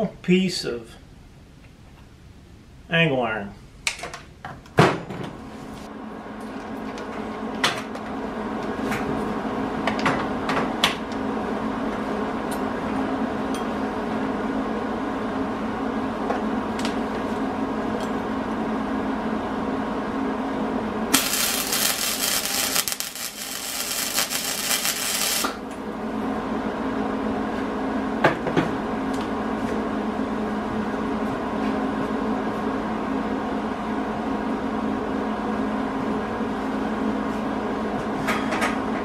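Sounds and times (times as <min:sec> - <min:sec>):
steady mechanical hum: 0:00.0 - 0:39.0
electric welding arc: 0:21.1 - 0:25.6.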